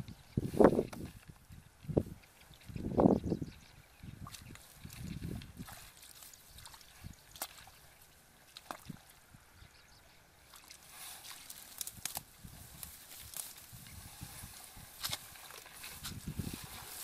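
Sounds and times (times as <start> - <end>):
squelching wet mud: 4.1 - 9.3, 10.4 - 17.0
hands rustling through grass: 10.5 - 17.0
small clicks and crackles: 10.6 - 14.0.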